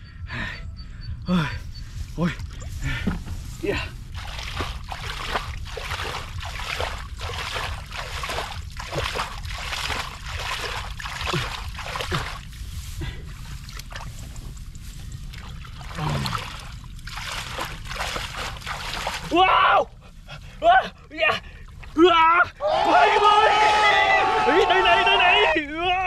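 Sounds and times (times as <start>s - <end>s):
muddy water splashing by hand: 2.5s - 19.4s.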